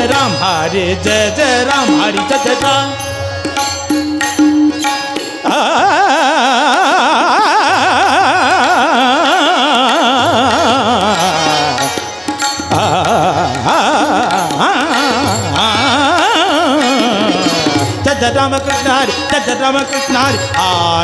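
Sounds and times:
man singing wavering vowel: 0.0s - 3.3s, 5.4s - 21.0s
tabla: 0.0s - 21.0s.

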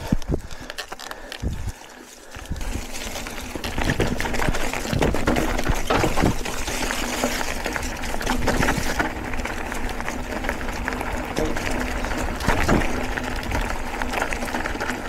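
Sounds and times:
bike tyres crunching on trail: 0.0s - 15.0s
bike knocks and rattles: 2.7s - 15.0s.

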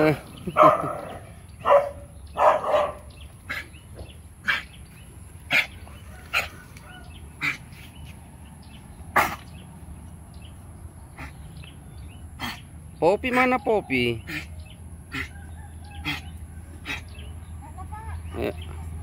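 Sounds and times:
dog barking: 0.6s - 3.6s.

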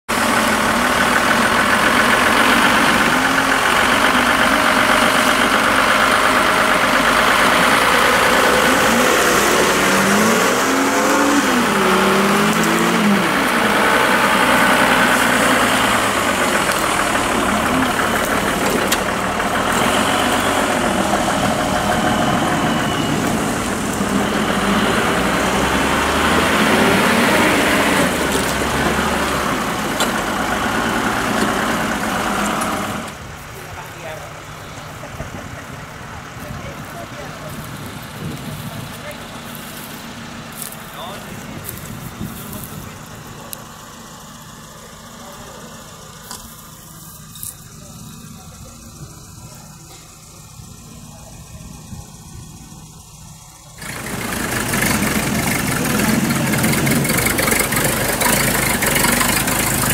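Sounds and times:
off-road vehicle engine revving: 0.0s - 59.9s.

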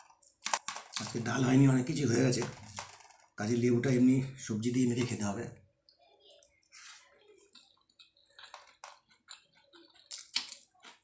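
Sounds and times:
chewing and mouth smacks: 7.4s - 11.0s.

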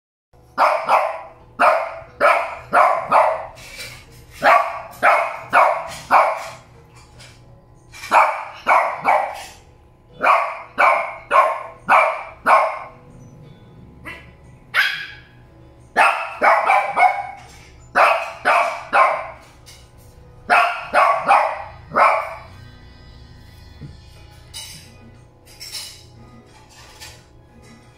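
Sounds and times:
small dog barking: 0.6s - 3.6s, 4.4s - 6.6s, 8.1s - 9.4s, 10.2s - 13.0s, 14.1s - 15.3s, 16.0s - 17.4s, 18.0s - 19.4s, 20.5s - 22.5s.

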